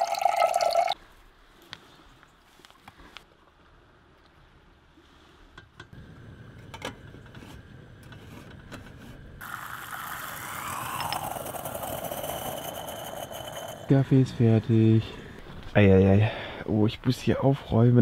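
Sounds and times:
moka pot hissing and gurgling: 0.0 - 1.0, 5.9 - 16.2
moka pot clicks and scrapes: 6.6 - 14.8.

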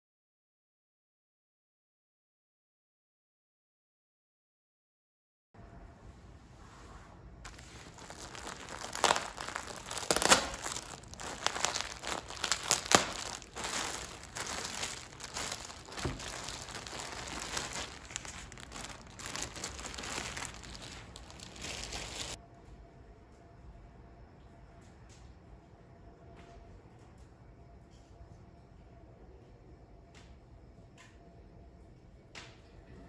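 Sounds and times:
plastic bag crinkling: 7.5 - 22.4.

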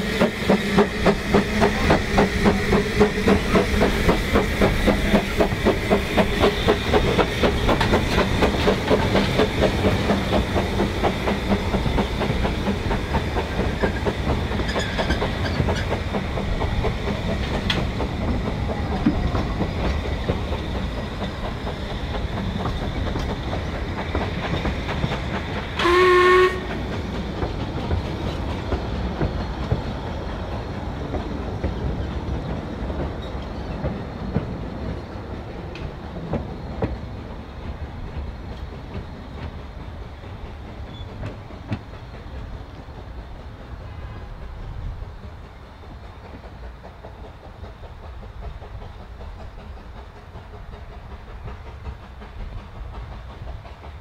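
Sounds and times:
steam locomotive exhaust beats: 0.0 - 54.0
coaches rumbling and clacking: 0.3 - 25.8
steam whistle blast: 25.8 - 26.8.

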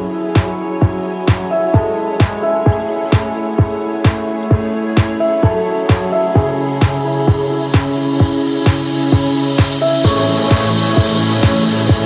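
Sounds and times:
held chords: 0.0 - 12.0
bass drum beat: 4.5 - 12.0.

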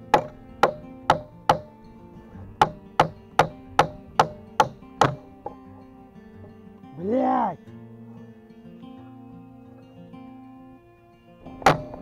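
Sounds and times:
hatchet hammering nails into wood: 0.0 - 1.7, 2.6 - 5.6, 11.6 - 12.0.

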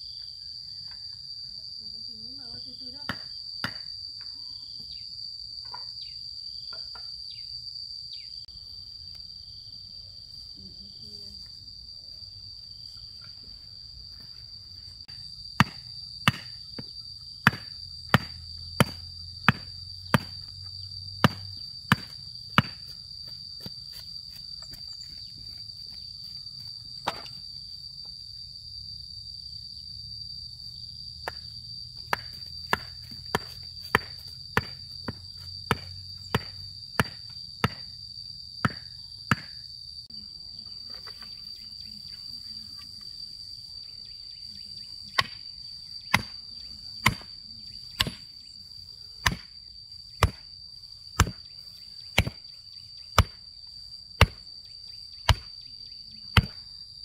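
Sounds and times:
hand tool chopping: 15.6 - 20.4, 21.2 - 22.9, 32.1 - 37.9, 46.1 - 46.3, 47.0 - 47.3, 48.0 - 48.2, 49.2 - 49.5, 50.2 - 50.4, 51.2 - 51.4, 52.2 - 52.4, 53.2 - 53.4, 54.2 - 54.4, 55.3 - 55.5, 56.4 - 56.6
insects shrilling: 40.8 - 57.0.

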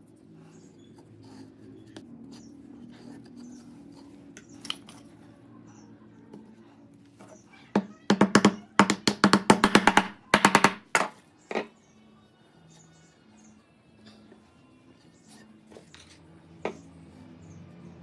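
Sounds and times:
wooden mallet knocking wood: 7.8 - 11.7.

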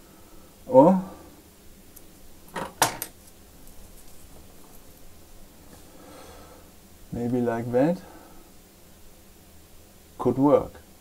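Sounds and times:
faint handling noise: 1.8 - 6.0.

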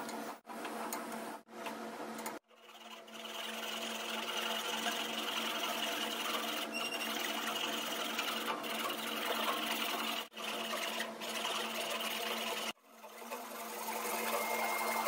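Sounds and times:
hand saw cutting wood: 2.5 - 13.5.

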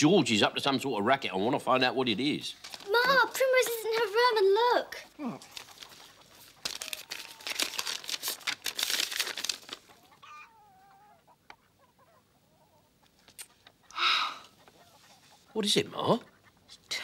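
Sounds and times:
paper crackling: 2.6 - 4.4, 5.4 - 10.0
hen clucking: 3.0 - 7.5, 9.8 - 17.0.

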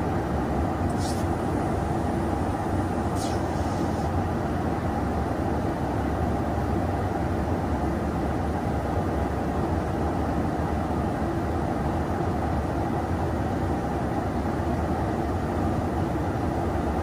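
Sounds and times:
aircraft cabin engine rumble: 0.0 - 7.7.

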